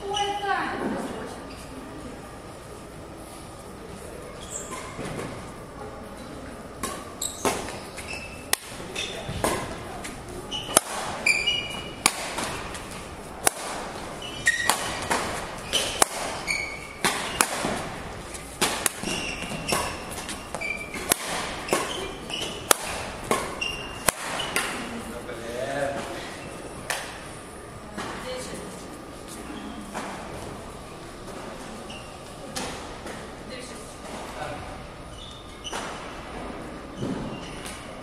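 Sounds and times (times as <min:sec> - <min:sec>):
shoes squeaking on floor: 0:00.0 - 0:00.6, 0:01.4 - 0:01.8, 0:04.3 - 0:05.4, 0:06.8 - 0:25.0, 0:29.2 - 0:30.0, 0:31.3 - 0:32.5, 0:35.1 - 0:36.2, 0:36.9 - 0:38.0
rackets striking shuttlecock: 0:06.8 - 0:09.8, 0:10.5 - 0:24.9.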